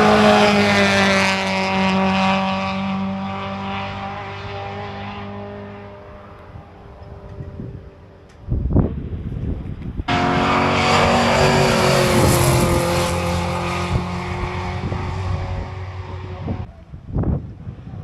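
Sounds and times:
car engine racing past: 0.0 - 6.4, 10.1 - 16.7.

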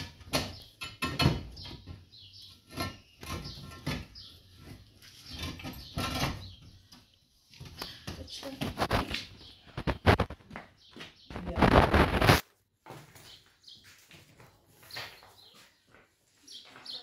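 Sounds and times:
concrete blocks knocking and scraping: 0.0 - 13.2.

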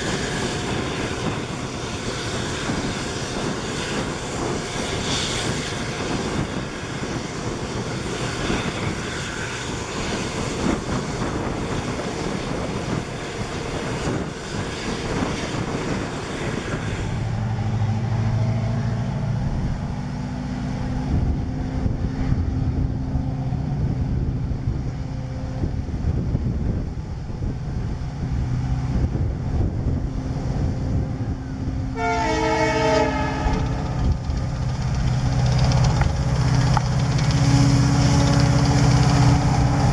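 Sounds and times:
diesel locomotive engine drone: 0.0 - 39.9
locomotive horn: 31.9 - 34.0, 37.3 - 39.9
train wheels rattling and clattering: 33.4 - 39.9.

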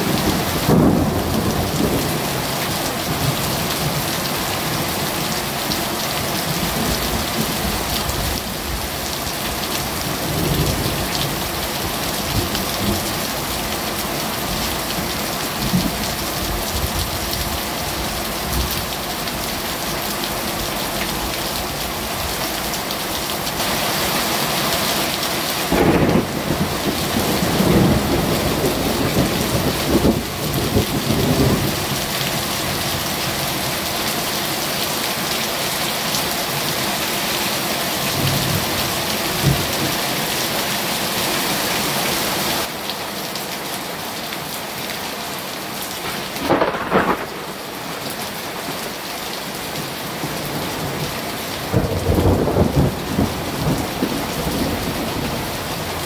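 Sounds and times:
thunder rumbling: 0.0 - 3.4, 25.7 - 31.9, 46.0 - 47.6, 51.7 - 55.5
heavy rain pouring: 0.0 - 56.0.

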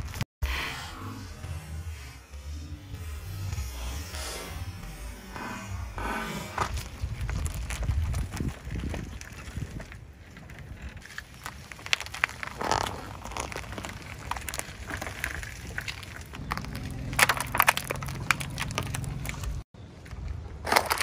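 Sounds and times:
car engine humming: 0.4 - 7.8, 13.2 - 19.6
tyre crushing power cord: 0.9 - 9.8, 11.2 - 19.6.

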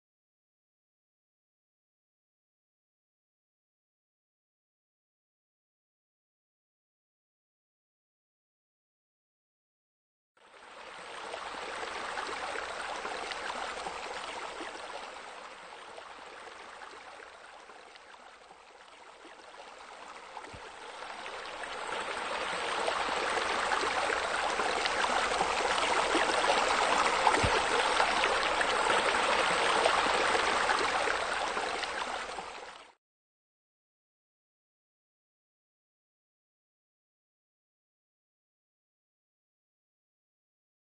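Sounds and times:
water splashing into pool: 22.5 - 32.1.

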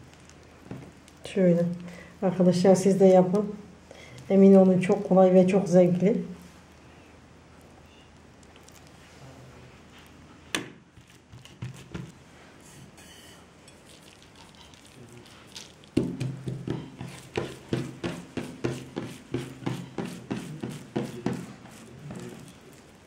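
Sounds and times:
dough thumping on wooden table: 10.5 - 12.2, 16.0 - 21.7.

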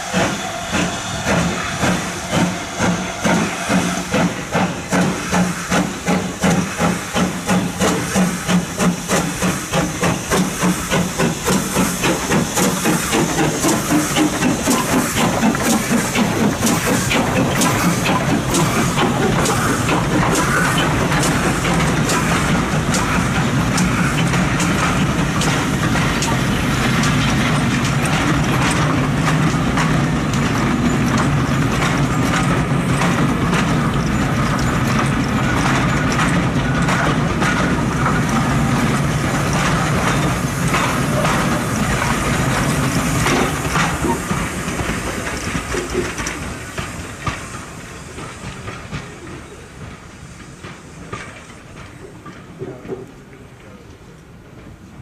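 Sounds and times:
steam from engine: 0.0 - 55.0
train rumble: 0.0 - 55.0
train wheels clicking over rail joints: 0.0 - 55.0.

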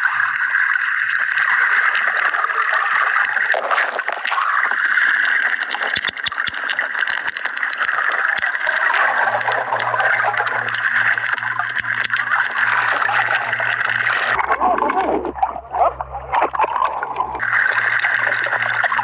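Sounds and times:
faint clicks and crackles: 0.0 - 19.0
low steady hum: 8.7 - 19.0.

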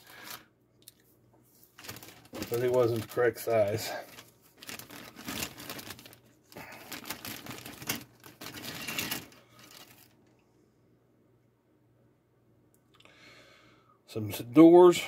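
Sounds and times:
plastic bag crinkling: 0.0 - 1.0, 1.6 - 10.2.

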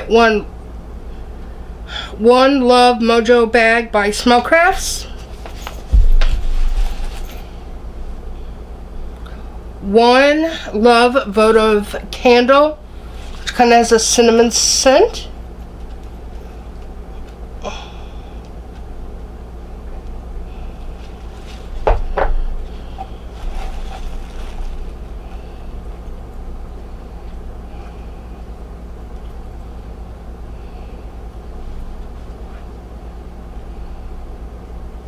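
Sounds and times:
low hum: 4.2 - 35.0
packaging crackling and rustling: 23.3 - 25.1.

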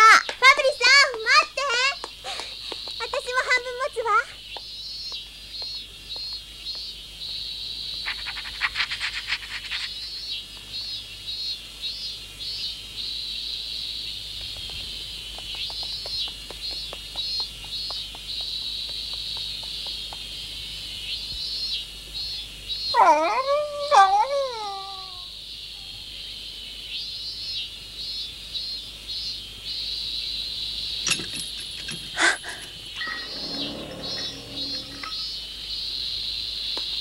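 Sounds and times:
insects chirping: 0.0 - 23.0, 25.3 - 37.0
dog whimpering: 23.0 - 24.9.

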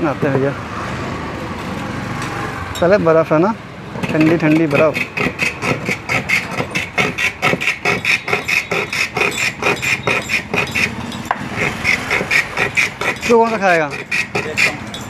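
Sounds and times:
ice shaving rasping scrapes: 4.0 - 15.0.

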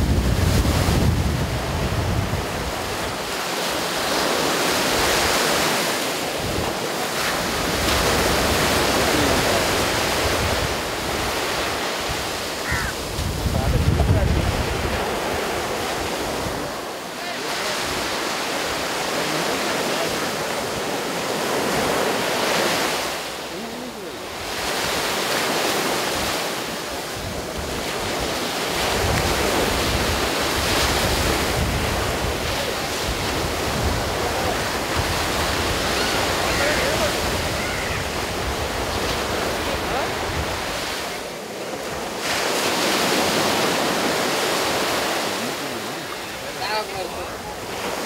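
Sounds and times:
wind buffeting microphone: 0.0 - 3.2, 6.3 - 16.8, 27.2 - 41.0
sea waves breaking: 0.0 - 48.0.

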